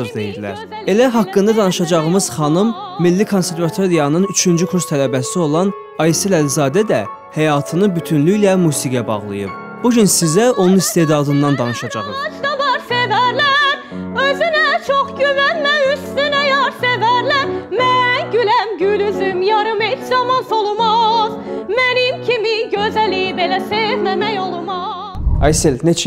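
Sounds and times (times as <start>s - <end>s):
woman singing opera: 0.2s - 3.2s, 10.3s - 25.2s.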